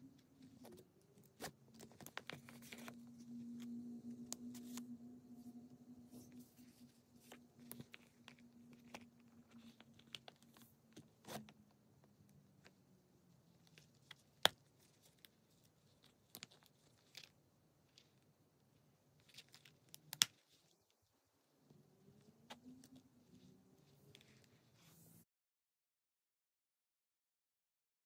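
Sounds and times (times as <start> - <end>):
card case rubbing and rustling: 0.4 - 3.2.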